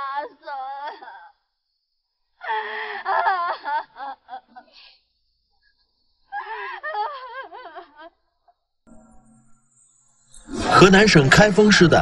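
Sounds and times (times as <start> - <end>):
woman wailing and sobbing: 0.0 - 1.4, 2.4 - 4.8, 6.3 - 8.2.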